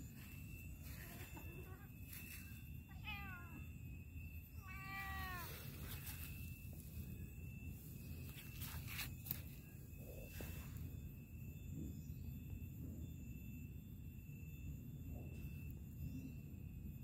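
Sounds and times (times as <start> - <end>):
cat meowing: 2.9 - 3.6, 4.6 - 5.7.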